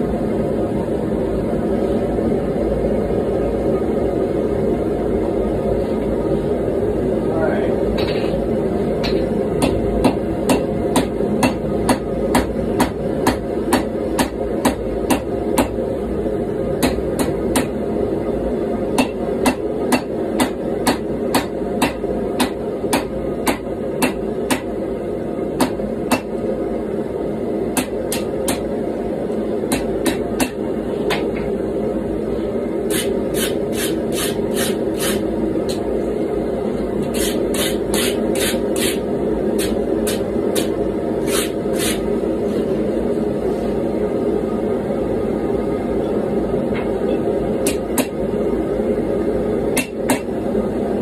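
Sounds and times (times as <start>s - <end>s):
gas forge running: 0.0s - 51.0s
hammer striking blade on anvil: 9.0s - 15.8s, 16.8s - 17.7s, 19.0s - 24.7s, 25.6s - 26.3s, 27.8s - 28.6s, 47.6s - 48.2s, 49.8s - 50.3s
wire brush scrubbing blade: 37.1s - 39.0s, 39.6s - 42.0s.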